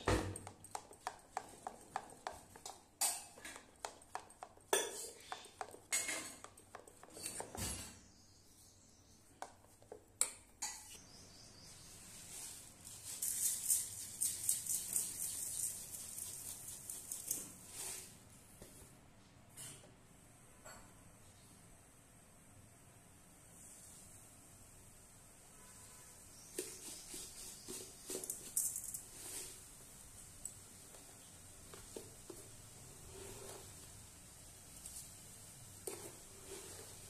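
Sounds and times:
whisk scraping steel bowl: 0:00.7 - 0:07.6, 0:35.8 - 0:37.0
sugar pouring into steel pan: 0:12.3 - 0:18.0.

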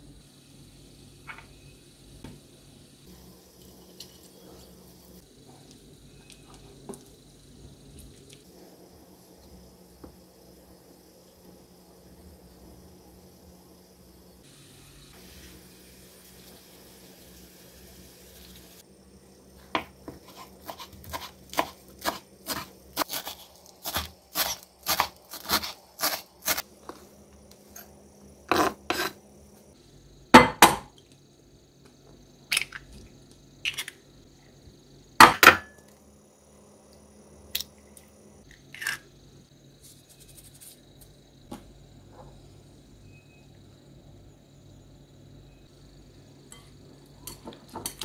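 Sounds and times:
knife chopping on cutting board: 0:19.8 - 0:26.6.

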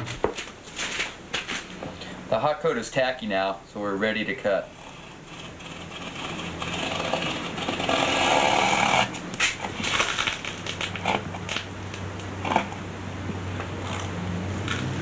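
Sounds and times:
razor blade scraping resin: 0:04.7 - 0:10.4.

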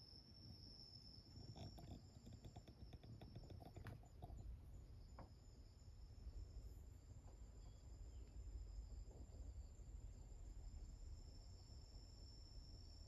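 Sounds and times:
steady high-pitched whine: 0:00.0 - 0:13.0
soft clicks and rustles: 0:01.4 - 0:04.5.

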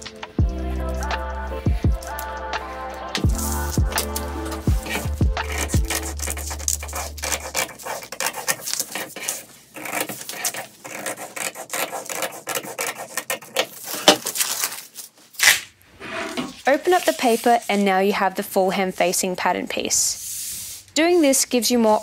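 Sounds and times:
scissors snipping paper: 0:03.1 - 0:15.6
paper rustling: 0:03.2 - 0:15.7, 0:16.3 - 0:18.2.

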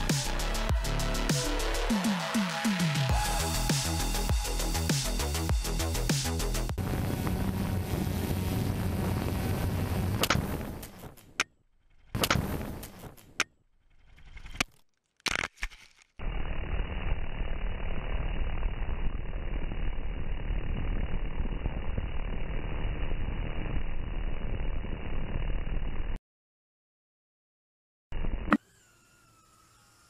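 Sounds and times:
drone propellers and wind rush: 0:02.7 - 0:10.9.

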